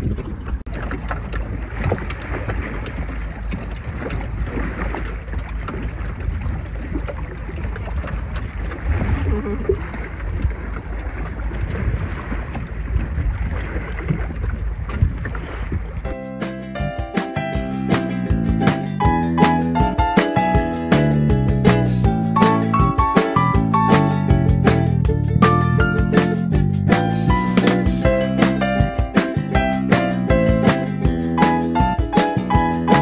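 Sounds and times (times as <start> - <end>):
wind noise on microphone: 0.0 - 16.2
water splashing along hull: 0.0 - 33.0.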